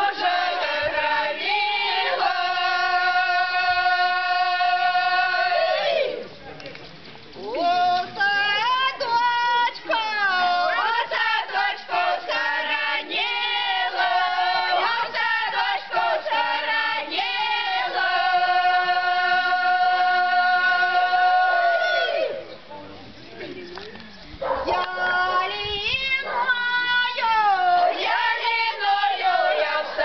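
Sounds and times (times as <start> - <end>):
women singing unaccompanied: 0.0 - 6.4, 7.4 - 22.7, 24.6 - 30.0.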